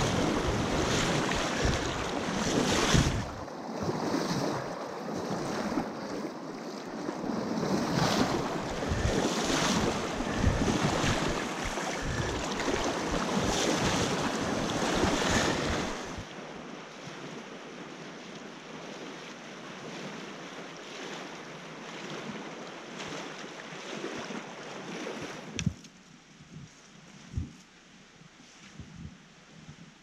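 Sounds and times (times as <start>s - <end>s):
wind buffeting microphone: 0.0s - 3.4s, 7.6s - 16.3s.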